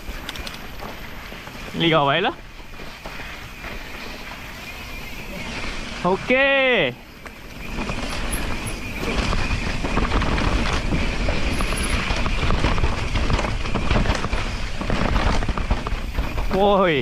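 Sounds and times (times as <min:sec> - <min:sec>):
bike rattling over bumps: 0:00.0 - 0:17.0
tyres rolling over dirt: 0:00.0 - 0:17.0.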